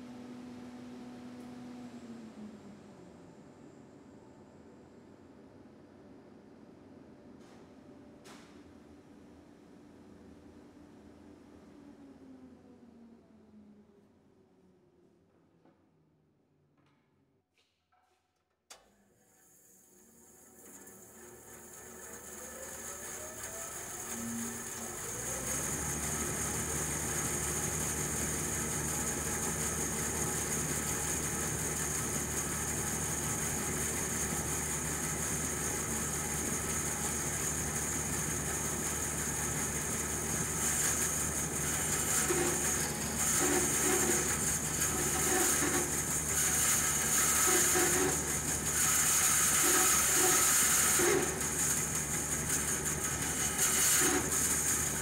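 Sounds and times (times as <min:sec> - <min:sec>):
bandsaw motor humming: 0:19.4 - 0:55.0
saw cutting wooden board: 0:40.4 - 0:55.0.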